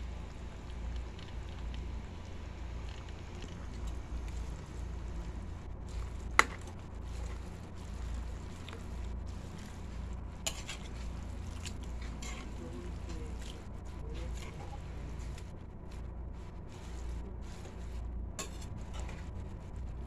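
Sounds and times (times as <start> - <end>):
steady low hum: 0.0 - 20.0
metal spatula stirring in wok: 8.8 - 13.5, 18.4 - 19.2.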